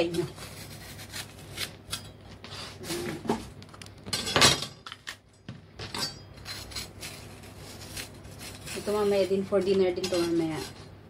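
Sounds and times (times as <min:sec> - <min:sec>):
knife cutting bell pepper: 0:00.0 - 0:03.2.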